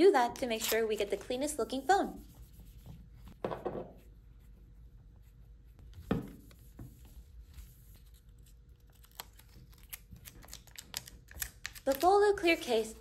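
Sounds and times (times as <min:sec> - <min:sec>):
wipe rubbing on glass screen: 0:01.7 - 0:03.3.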